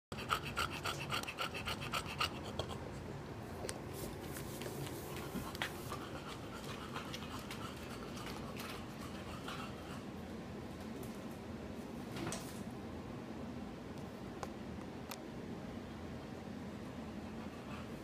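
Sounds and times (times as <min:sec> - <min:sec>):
dog panting rapidly: 0:00.1 - 0:02.8, 0:05.3 - 0:10.1.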